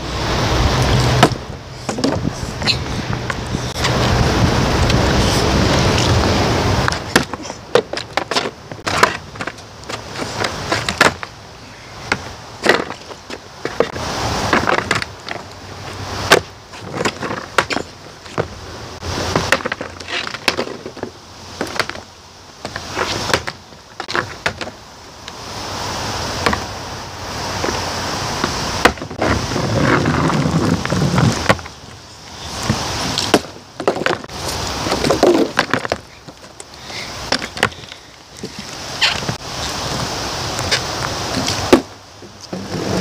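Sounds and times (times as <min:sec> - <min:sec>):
wind buffeting microphone: 0:00.0 - 0:11.0
skateboard clacking on asphalt: 0:06.8 - 0:11.4, 0:12.1 - 0:18.6, 0:19.2 - 0:24.8, 0:28.4 - 0:32.0, 0:32.6 - 0:39.4.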